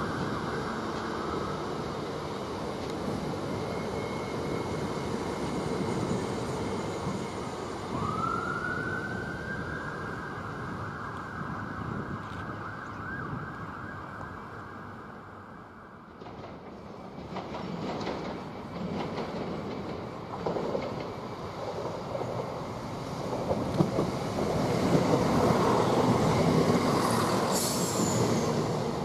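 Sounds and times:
train traction whine: 0.0s - 12.6s, 14.4s - 29.0s
train rumble: 16.1s - 29.0s.

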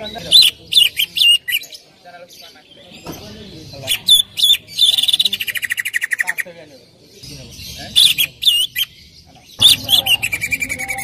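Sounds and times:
bird trilling: 0.0s - 11.0s
bird whistling: 3.8s - 6.4s, 8.0s - 9.0s, 9.6s - 11.0s.

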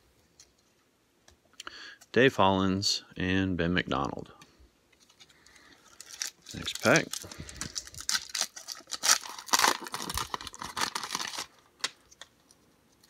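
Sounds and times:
wrapper crinkling and tearing: 5.0s - 12.6s.

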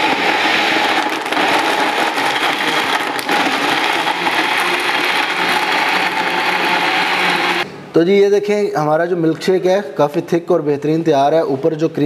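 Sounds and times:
electric blender running: 0.0s - 7.6s.

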